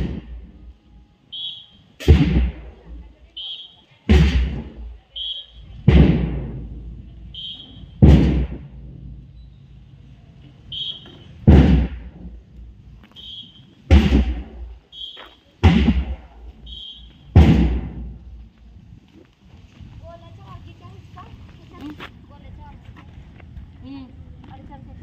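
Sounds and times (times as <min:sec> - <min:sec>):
loud booming thud: 0:02.0 - 0:03.0, 0:04.1 - 0:05.0, 0:05.8 - 0:07.1, 0:07.9 - 0:09.2, 0:11.4 - 0:12.4, 0:13.9 - 0:14.8, 0:15.6 - 0:16.5, 0:17.3 - 0:18.2.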